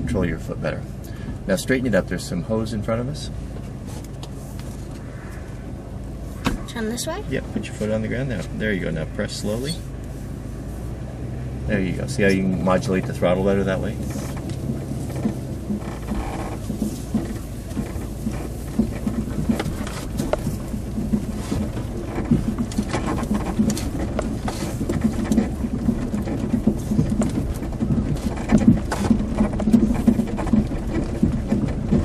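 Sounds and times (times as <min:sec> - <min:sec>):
engine and tyre rumble: 0:00.0 - 0:32.0
knocks and rattles from bumps: 0:11.0 - 0:32.0.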